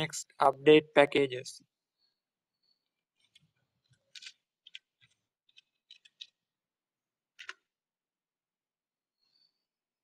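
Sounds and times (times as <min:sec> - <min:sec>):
keyboard typing: 0:03.2 - 0:06.4.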